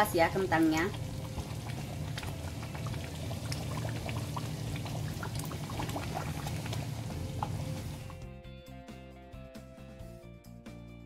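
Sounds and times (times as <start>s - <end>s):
low steady hum: 0.0s - 8.2s
sauce bubbling in a wok: 0.0s - 8.3s.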